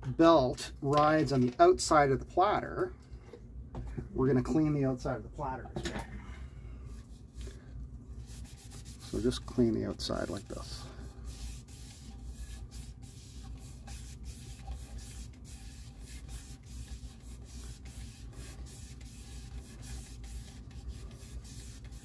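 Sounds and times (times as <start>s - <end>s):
cloth rubbing turntable platter: 8.2s - 22.0s.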